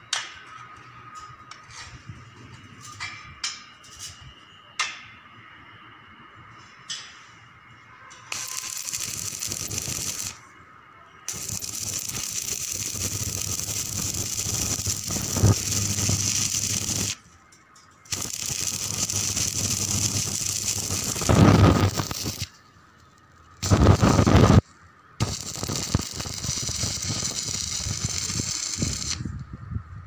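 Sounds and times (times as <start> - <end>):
arc welding crackling hiss: 8.2 - 10.5, 11.2 - 17.3, 17.9 - 24.6, 25.2 - 29.5.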